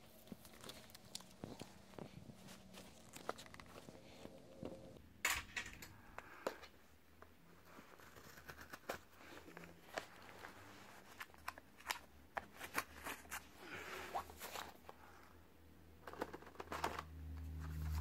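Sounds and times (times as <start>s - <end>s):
paper rustling: 0.0s - 4.5s.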